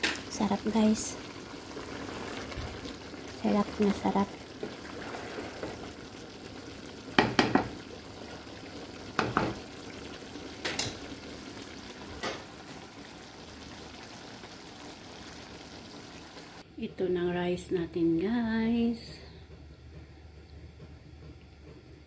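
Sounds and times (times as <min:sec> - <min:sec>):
food sizzling in a pan: 0:00.0 - 0:16.6
spoon knocking against a pan: 0:07.1 - 0:07.8, 0:09.2 - 0:09.6.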